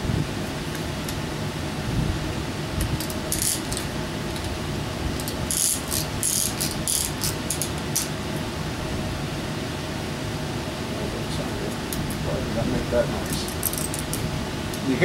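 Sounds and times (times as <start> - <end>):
low shop hum: 0.0 - 15.0
ratchet clicking: 2.8 - 4.5, 5.2 - 8.1, 13.5 - 14.2.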